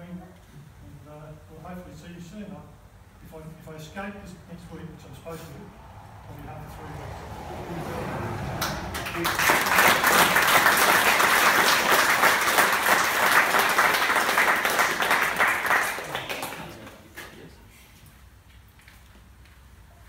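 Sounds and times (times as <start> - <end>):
audience applauding: 8.6 - 17.1.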